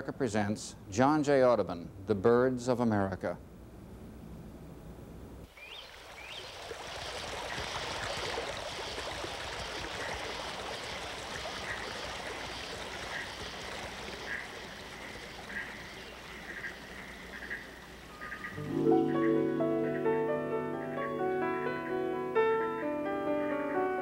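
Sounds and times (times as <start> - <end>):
stream running over rocks: 5.5 - 18.7.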